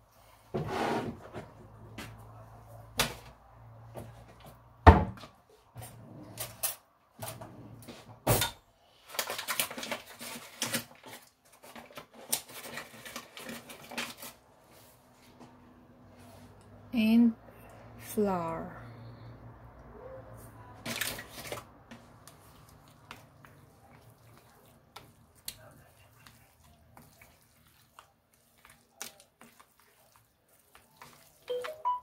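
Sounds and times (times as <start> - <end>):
wet vegetable mixture squelching: 19.8 - 32.0.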